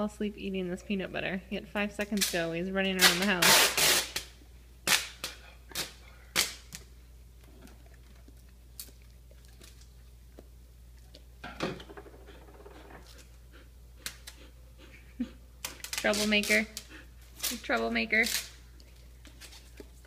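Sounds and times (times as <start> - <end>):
dog licking and smacking: 7.4 - 11.4.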